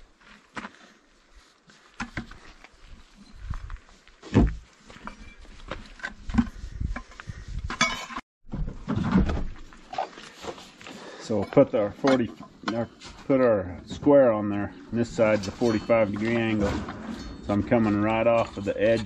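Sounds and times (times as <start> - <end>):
footstep scuffs on dirt: 0.0 - 7.4.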